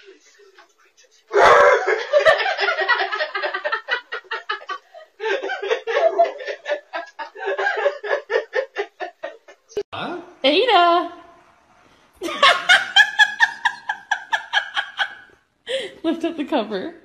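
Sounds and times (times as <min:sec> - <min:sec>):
person laughing hard: 0:01.8 - 0:09.4.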